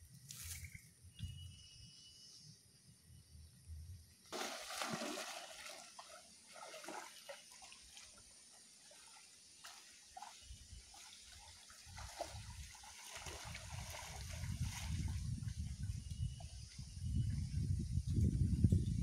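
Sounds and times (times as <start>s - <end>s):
wading through shallow water: 4.3s - 17.5s.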